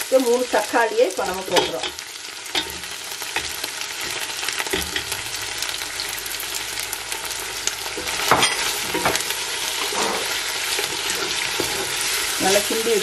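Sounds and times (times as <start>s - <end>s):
food sizzling in oil: 0.0s - 13.0s
spatula scraping and knocking pot: 8.0s - 12.3s.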